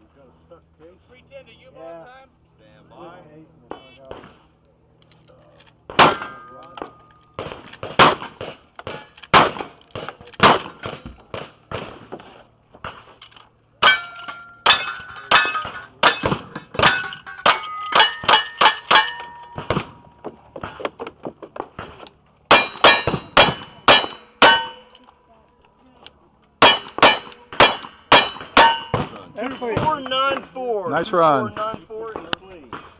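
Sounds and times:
gunshots: 5.9 - 6.5, 7.4 - 12.2, 22.5 - 24.8, 26.6 - 30.0
steel target ringing: 6.0 - 7.1, 13.8 - 20.2, 22.5 - 25.0, 26.6 - 29.2.

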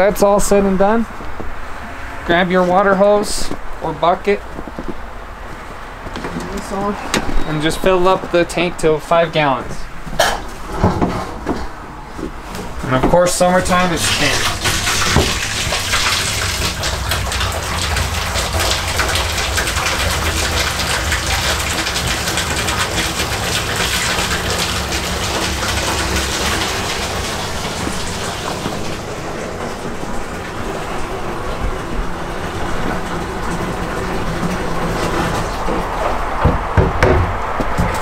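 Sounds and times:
hose water pouring into plastic tank: 13.4 - 36.2.

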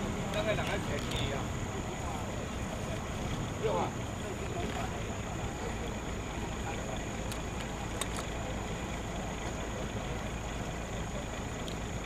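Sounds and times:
low outdoor rumble: 0.0 - 12.0
faint clicks: 7.2 - 8.4, 11.6 - 11.9.

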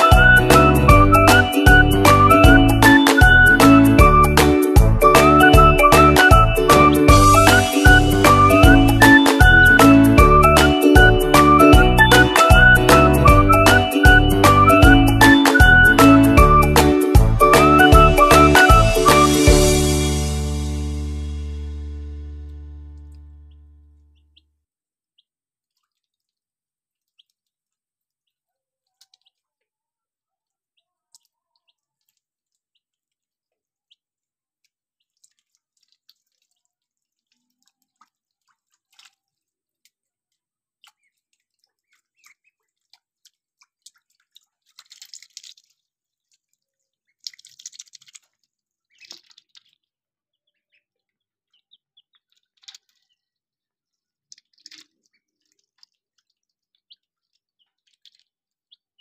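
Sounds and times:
loud splashing: 0.0 - 22.3
ducklings splashing in water: 0.0 - 24.4, 25.2 - 59.0.

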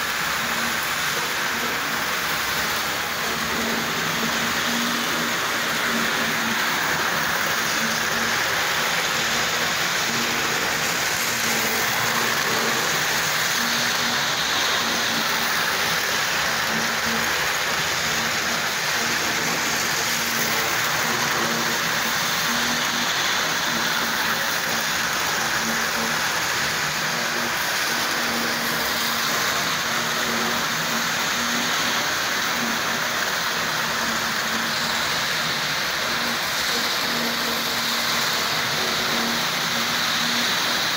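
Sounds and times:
model trains rattling whir: 0.0 - 40.9.

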